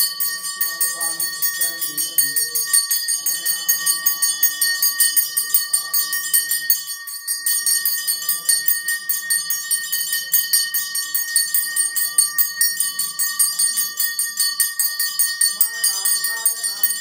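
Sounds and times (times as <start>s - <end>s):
faint voices: 0.0s - 17.0s
small brass bell clanging: 0.0s - 17.0s.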